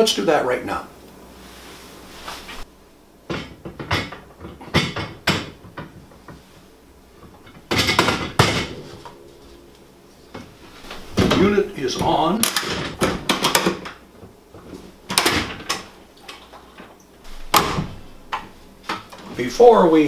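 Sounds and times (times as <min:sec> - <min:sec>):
drawer runner sliding hiss: 0:01.4 - 0:02.7.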